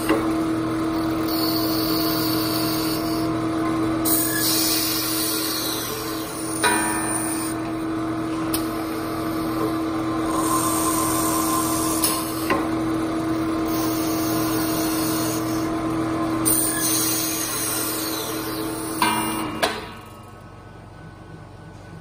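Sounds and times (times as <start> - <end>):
lathe motor hum: 0.0 - 19.4
cutter hissing on wood: 1.2 - 3.3, 4.1 - 6.7, 13.6 - 15.7.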